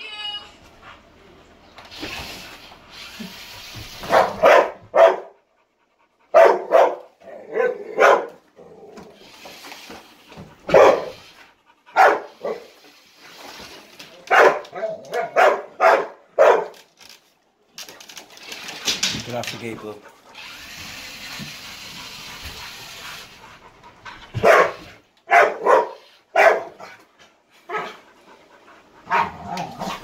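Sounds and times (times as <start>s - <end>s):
dog barking: 4.0s - 5.4s, 6.3s - 8.4s, 10.7s - 11.2s, 12.0s - 12.6s, 14.3s - 16.8s, 24.4s - 26.8s, 29.1s - 29.4s.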